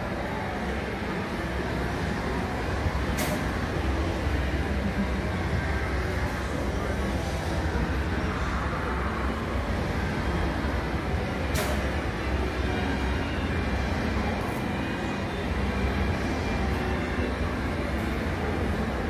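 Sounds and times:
busy mall background rumble: 0.0 - 19.0.

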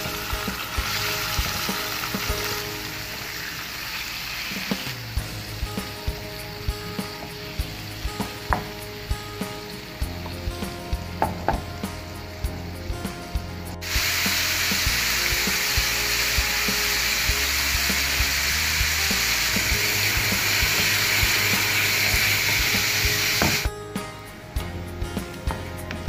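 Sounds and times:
meat frying in oil: 0.0 - 12.8, 13.5 - 23.7
faint background music: 0.0 - 26.0.

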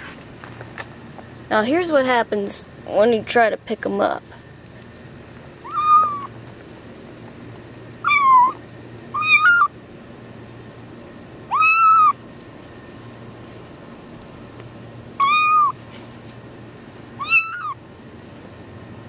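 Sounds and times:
kitten meowing: 5.6 - 6.3, 8.0 - 9.7, 11.5 - 12.2, 15.2 - 15.8, 17.2 - 17.8.

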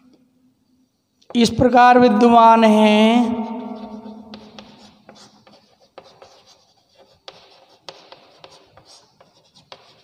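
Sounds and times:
chalk scratching on blackboard: 3.6 - 10.0
chalk tapping on board: 3.8 - 10.0.

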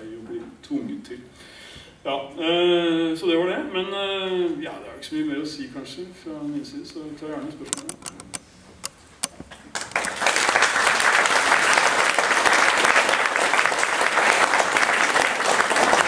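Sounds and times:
audience applauding: 9.7 - 16.0.

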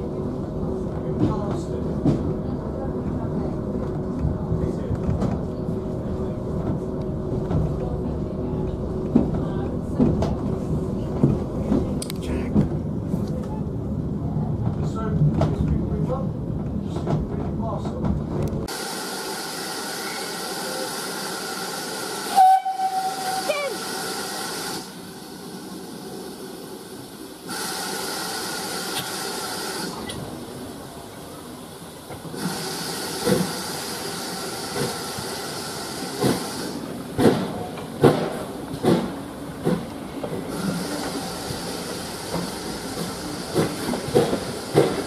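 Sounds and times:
steam hissing: 18.7 - 30.2, 32.2 - 37.5, 40.4 - 45.0
steam locomotive whistle: 22.2 - 23.9.

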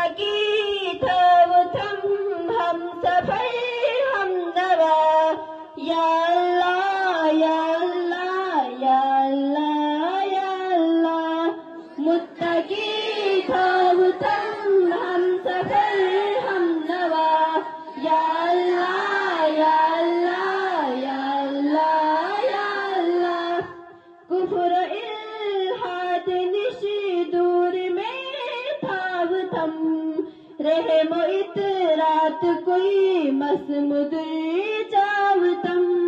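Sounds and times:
children singing a prayer: 9.5 - 23.8.

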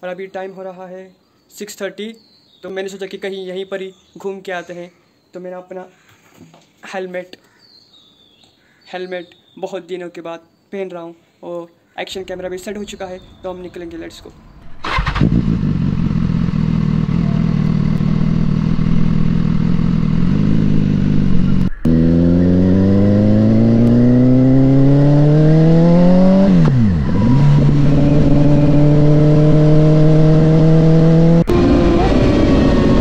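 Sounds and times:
road and wind noise: 12.2 - 33.0
motorcycle engine: 14.6 - 33.0.

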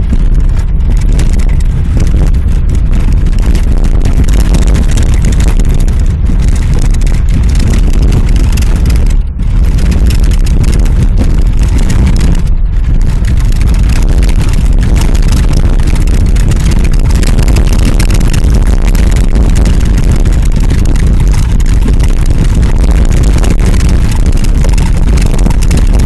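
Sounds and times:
car engine: 0.0 - 26.0
tyres on snow: 0.0 - 26.0.

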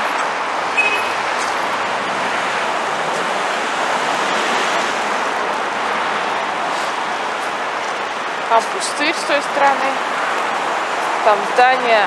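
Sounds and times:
road traffic hiss: 0.0 - 12.0.

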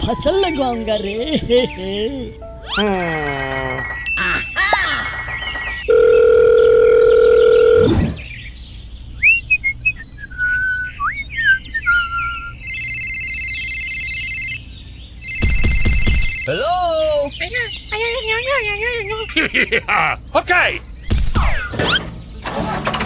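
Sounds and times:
bird-like chirps: 2.6 - 5.9, 8.0 - 12.7, 14.5 - 19.4, 20.1 - 22.4
electronic phone ring tone: 2.8 - 8.1, 12.6 - 14.6, 15.2 - 16.6
telephone dial tone: 5.8 - 7.9.

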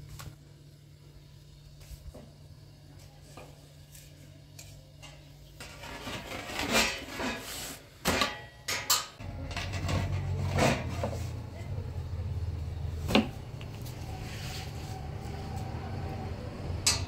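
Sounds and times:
dishes and utensils clattering: 5.0 - 11.3
low steady hum: 8.0 - 17.0.

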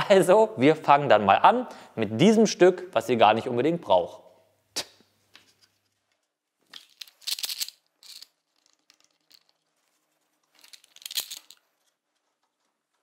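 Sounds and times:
small hard parts clattering: 5.4 - 13.0.

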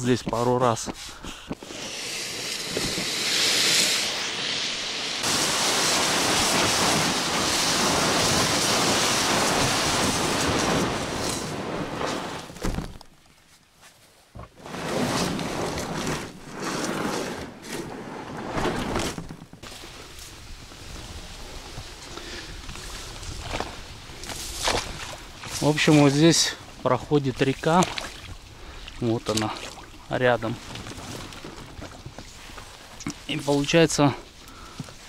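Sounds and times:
boat rustling through reeds: 0.6 - 35.0
inflatable boat scraping over sand: 1.6 - 12.6, 14.6 - 26.6.

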